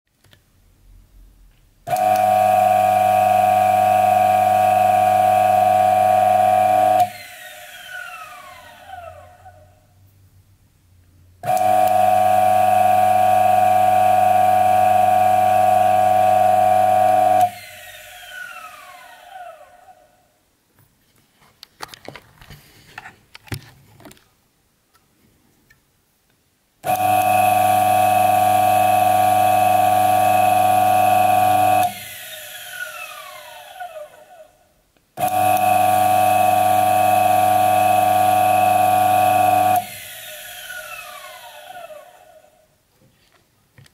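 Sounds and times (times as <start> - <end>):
coffee grinder motor whining: 1.9 - 9.6, 11.5 - 20.0, 26.9 - 34.6, 35.2 - 42.6.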